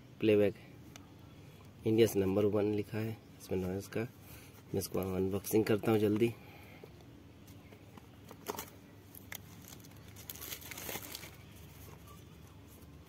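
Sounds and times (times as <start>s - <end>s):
plastic wrap crinkling: 8.3s - 12.0s.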